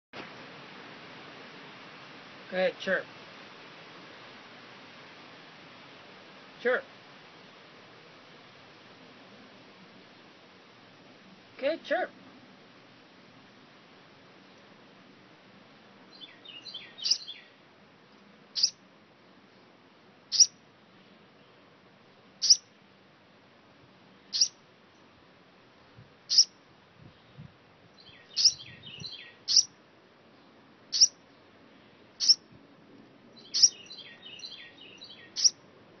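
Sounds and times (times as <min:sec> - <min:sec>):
soft bird twittering: 0:16.1 - 0:17.5, 0:18.6 - 0:18.8, 0:20.3 - 0:20.5, 0:22.4 - 0:22.6, 0:24.3 - 0:24.6, 0:26.3 - 0:26.5, 0:28.0 - 0:29.7, 0:30.9 - 0:31.2, 0:32.2 - 0:32.4, 0:33.4 - 0:35.6
baby bird chirping: 0:16.5 - 0:17.4, 0:18.6 - 0:18.8, 0:20.3 - 0:20.6, 0:22.4 - 0:22.7, 0:24.3 - 0:24.6, 0:26.3 - 0:26.5, 0:28.0 - 0:29.7, 0:30.9 - 0:31.2, 0:32.2 - 0:32.4, 0:33.4 - 0:35.6.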